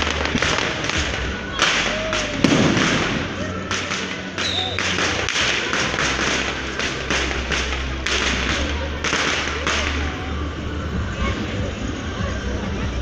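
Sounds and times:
fireworks bangs and crackles: 0.0s - 13.0s
low rumble: 0.0s - 13.0s.

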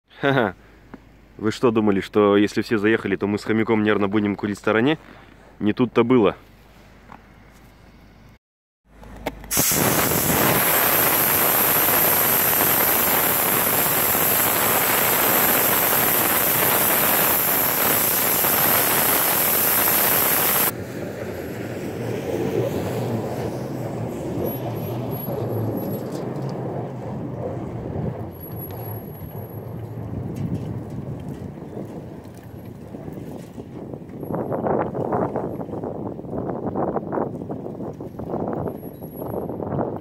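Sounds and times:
car engine climbing slope: 8.9s - 36.1s
wind noise on microphone: 9.4s - 40.0s
air hissing from tyre valve: 9.5s - 20.7s.

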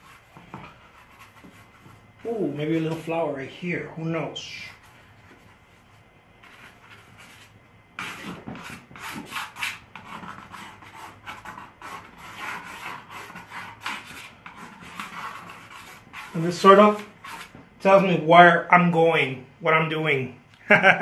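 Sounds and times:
paintbrush rubbing on canvas: 0.0s - 3.2s, 4.5s - 17.6s.

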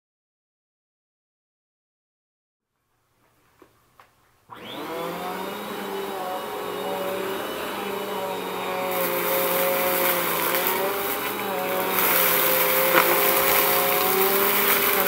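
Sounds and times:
vacuum cleaner motor whining: 4.5s - 15.0s.

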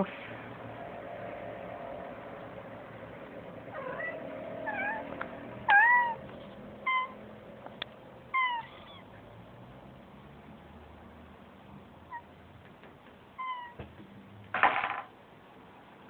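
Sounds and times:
cat meowing: 3.7s - 5.1s, 5.7s - 6.2s, 6.8s - 7.2s, 8.3s - 9.1s, 13.4s - 13.8s.

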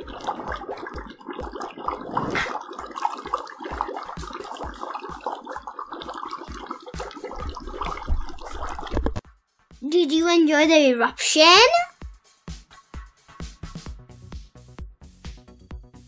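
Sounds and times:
dry ice bubbling in water: 0.0s - 9.2s.

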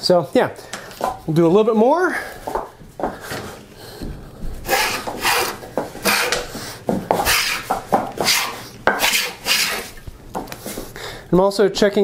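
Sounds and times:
hand plane rasping on wood: 4.6s - 10.0s.

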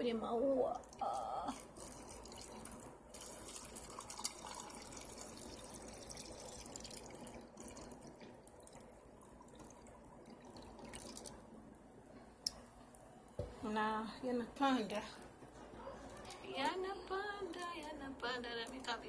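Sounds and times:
water trickling into a glass vase: 0.6s - 11.6s, 16.2s - 19.0s.

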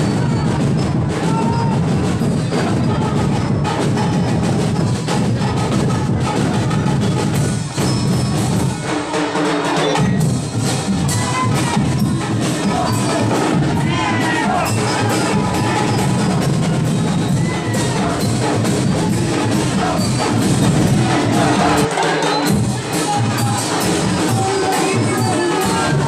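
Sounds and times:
drum-heavy dance music: 0.0s - 26.0s.

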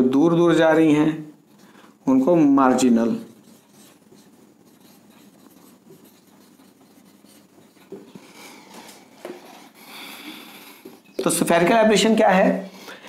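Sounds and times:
marker pen squeaking on whiteboard: 2.7s - 11.6s.

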